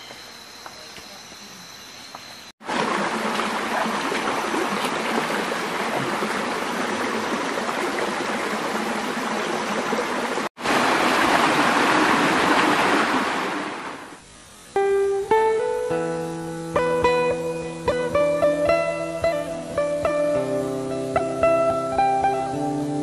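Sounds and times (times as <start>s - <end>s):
stream rushing over stones: 2.6s - 14.2s.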